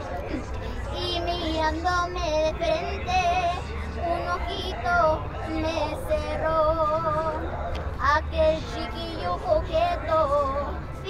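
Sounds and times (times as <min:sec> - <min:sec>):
low background rumble: 0:00.0 - 0:11.0
girl singing with vibrato: 0:00.7 - 0:07.4, 0:08.0 - 0:11.0.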